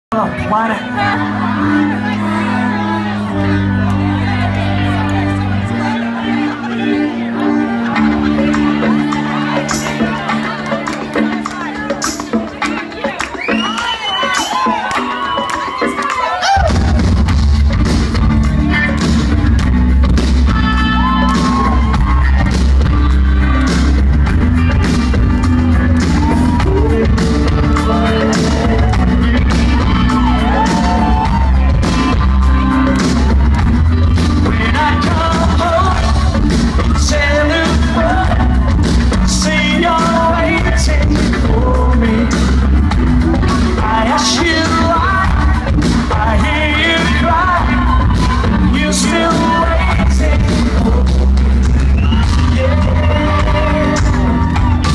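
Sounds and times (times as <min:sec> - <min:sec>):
heavy bass line: 0:00.1 - 0:12.6, 0:16.5 - 0:54.9
live rock band playing: 0:00.1 - 0:54.9
man singing: 0:26.2 - 0:32.9, 0:34.2 - 0:54.9.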